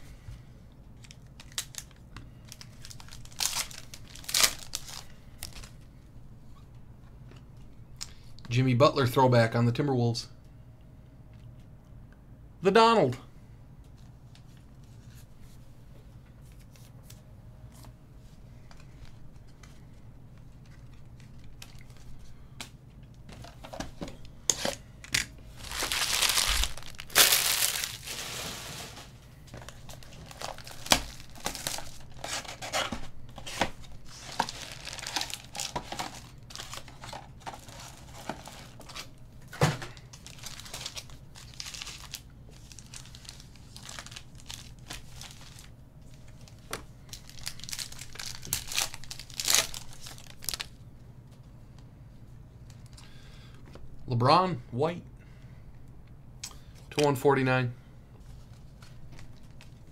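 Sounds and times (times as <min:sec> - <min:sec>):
plastic wrapping tearing: 0:01.0 - 0:05.7, 0:25.6 - 0:29.0, 0:29.6 - 0:32.9, 0:33.6 - 0:39.1, 0:40.1 - 0:45.7, 0:46.5 - 0:50.8
foil packs crinkling: 0:01.0 - 0:05.9, 0:25.5 - 0:39.2, 0:39.8 - 0:50.8, 0:58.4 - 0:59.9.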